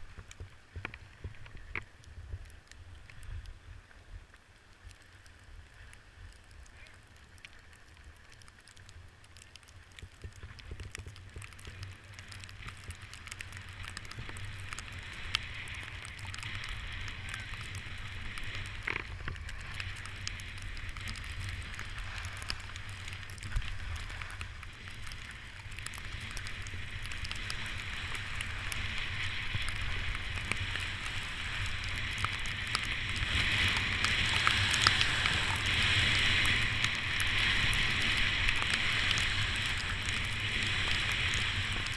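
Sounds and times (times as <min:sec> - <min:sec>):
wind rumble on microphone: 0:00.0 - 0:41.9
snowboard scraping over snow: 0:11.8 - 0:41.9.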